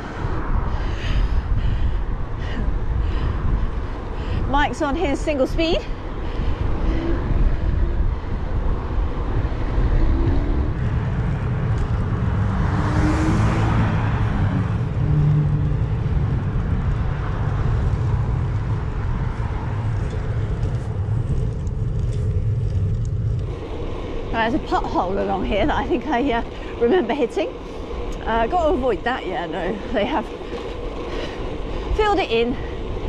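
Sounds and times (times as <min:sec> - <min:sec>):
wind rumble on microphone: 0:00.0 - 0:33.0
car driving past: 0:09.6 - 0:20.0.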